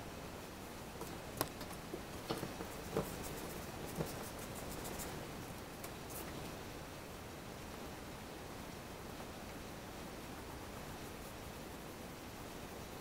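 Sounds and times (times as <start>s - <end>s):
pencil scratching on paper: 2.6s - 5.2s.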